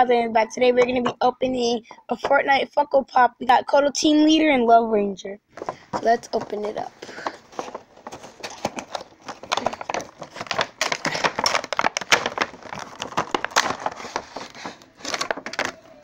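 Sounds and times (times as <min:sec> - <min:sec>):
plastic insert crinkling: 0:05.6 - 0:16.0.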